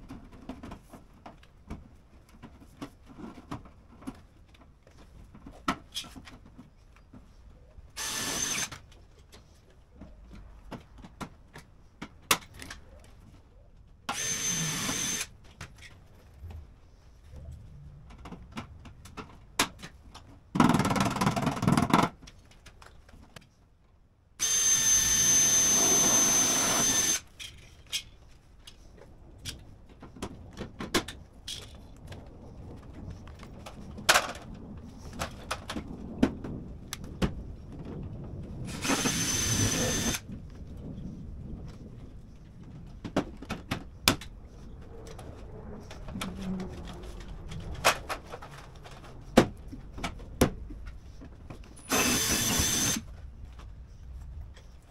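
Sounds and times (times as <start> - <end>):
power drill whining: 8.0 - 8.8, 14.1 - 15.3, 24.4 - 27.3, 38.7 - 40.2, 51.8 - 53.1
sharp clicks and knocks: 17.4 - 23.5.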